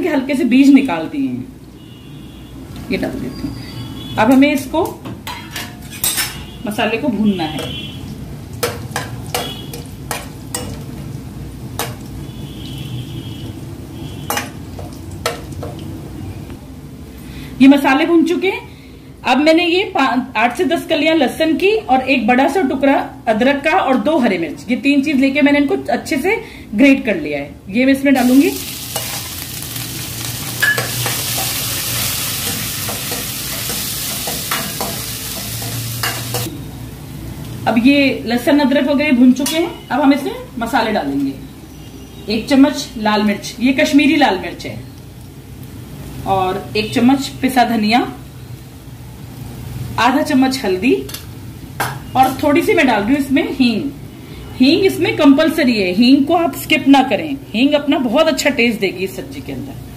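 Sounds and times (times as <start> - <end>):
ladle clinking and scraping pan: 5.3 - 6.5, 30.4 - 36.5
spices sizzling in hot oil: 7.9 - 16.0, 28.2 - 36.5
ladle clinking against pan: 30.6 - 31.5.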